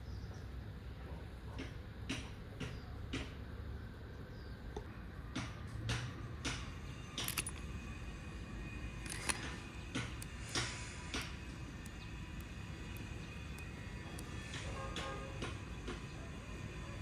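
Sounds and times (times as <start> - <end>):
steady low hum: 0.0 - 17.0
clicks and scrapes: 9.1 - 14.3.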